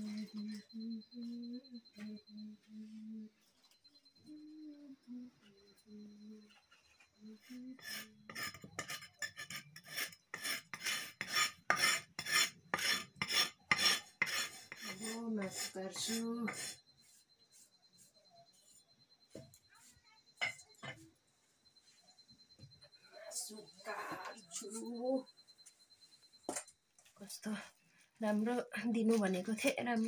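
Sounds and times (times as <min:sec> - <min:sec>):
knife scraping wooden block: 0:07.8 - 0:16.8.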